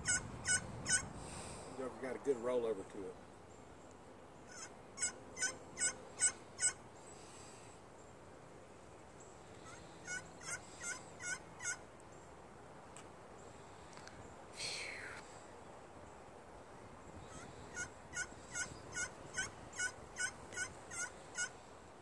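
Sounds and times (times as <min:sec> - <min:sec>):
slate turkey call yelps: 0:00.0 - 0:01.1, 0:04.5 - 0:06.8, 0:09.6 - 0:11.8, 0:17.2 - 0:21.6.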